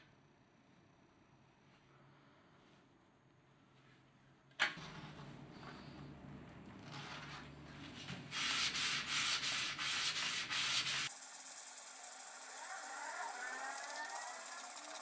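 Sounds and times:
hammer sanding on sandpaper: 8.3 - 15.0.

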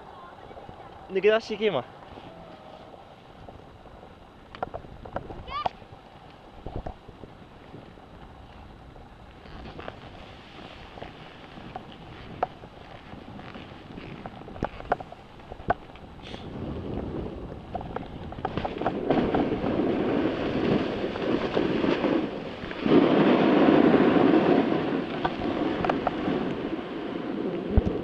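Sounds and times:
wind buffeting microphone: 2.9 - 28.0
skis hissing through powder snow: 9.4 - 14.8, 16.2 - 17.4, 18.9 - 27.8.

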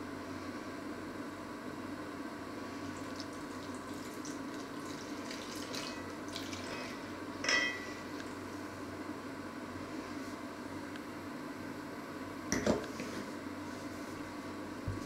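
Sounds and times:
steady background hum: 0.0 - 15.0
ringing clink off metal bowl: 6.8 - 8.0.

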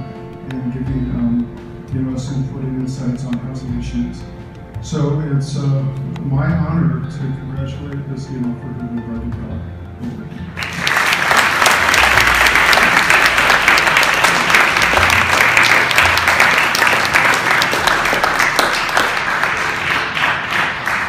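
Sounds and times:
audience applauding: 10.6 - 21.0.

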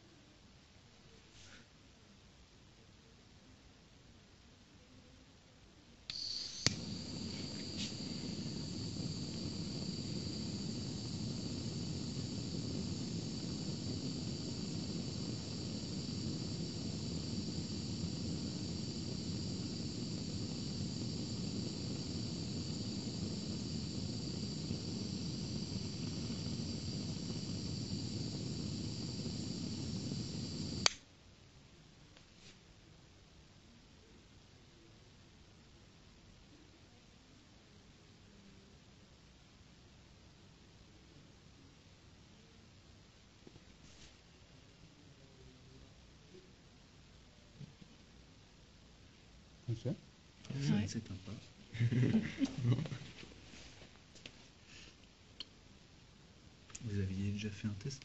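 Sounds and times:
hot-air gun switch click: 6.1 - 6.9, 30.8 - 31.0
hot-air gun blowing and whining: 6.1 - 31.0.

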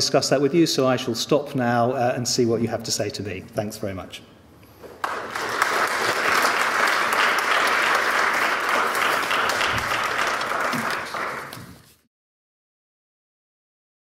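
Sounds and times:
audience applauding: 5.0 - 11.9.

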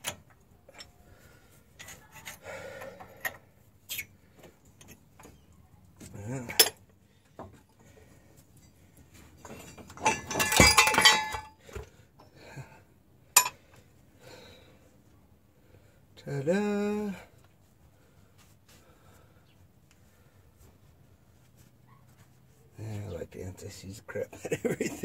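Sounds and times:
steel parts clinking: 6.5 - 6.8, 9.4 - 11.6, 13.4 - 13.6
ringing metal clatter: 9.4 - 11.6.

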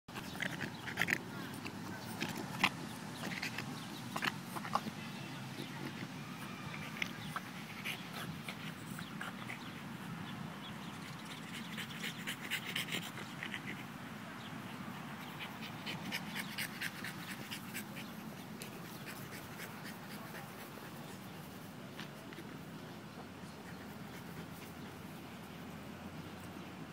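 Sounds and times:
dog panting: 0.1 - 5.0, 10.8 - 13.8, 15.2 - 22.6.

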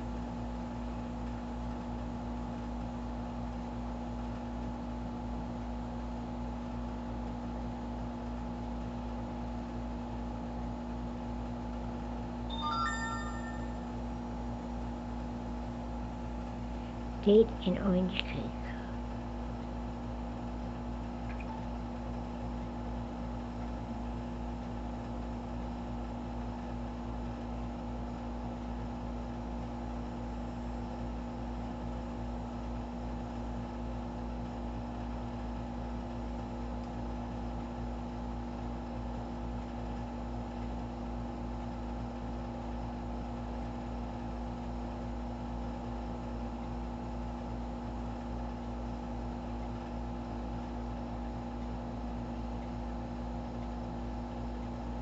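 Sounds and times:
steady machine hum: 16.0 - 24.4.

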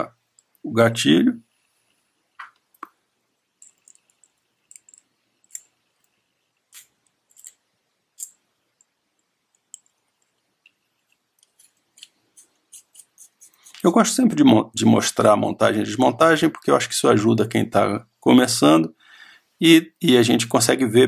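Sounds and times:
small metal clicks and taps: 3.6 - 6.2, 8.2 - 12.2.

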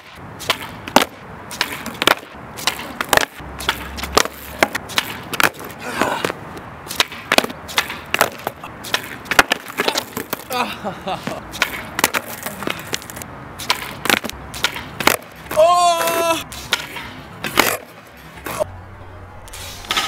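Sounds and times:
skateboard tail pops: 0.0 - 10.5, 11.6 - 15.6, 16.7 - 18.0
skateboard clattering on asphalt: 0.1 - 10.6, 11.2 - 18.0.

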